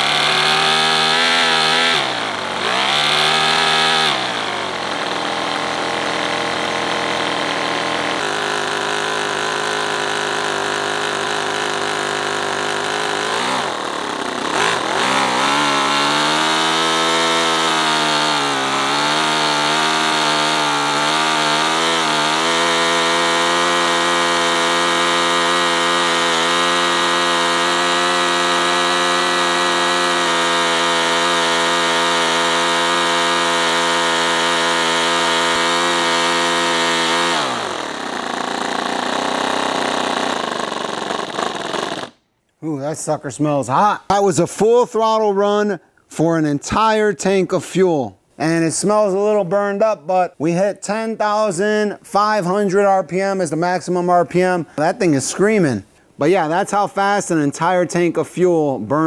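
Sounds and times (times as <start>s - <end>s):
model engine revving: 0.0s - 42.2s.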